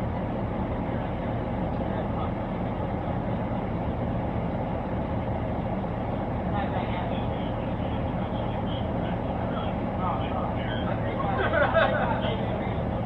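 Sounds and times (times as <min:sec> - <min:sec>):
car idling hum: 0:00.0 - 0:13.0
faint muffled voices: 0:00.7 - 0:03.8, 0:06.3 - 0:13.0.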